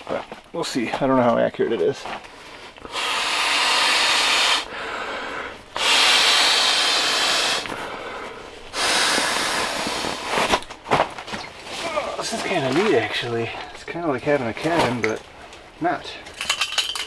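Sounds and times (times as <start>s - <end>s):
breath blowing up pillow: 2.9s - 4.7s, 5.8s - 7.8s, 8.7s - 10.5s.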